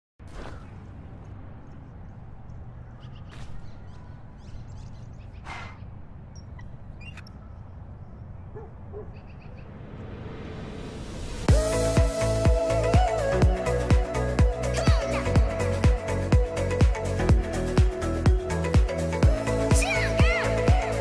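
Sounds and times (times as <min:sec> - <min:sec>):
faint short chirps and calls: 0:02.9 - 0:07.8
low rumble: 0:09.1 - 0:13.6
whooshes: 0:09.3 - 0:11.7.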